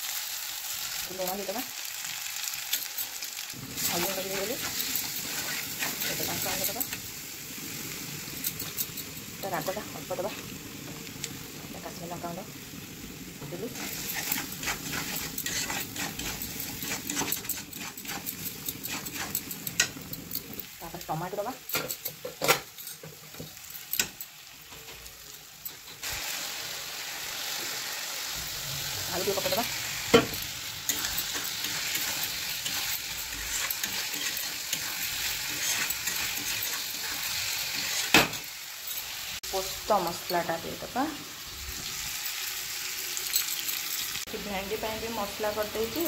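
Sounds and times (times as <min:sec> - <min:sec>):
masala sizzling in oil: 0:00.0 - 0:46.0
metal spatula scraping a pan: 0:02.6 - 0:07.0, 0:08.0 - 0:10.6, 0:13.4 - 0:20.8, 0:28.8 - 0:39.4.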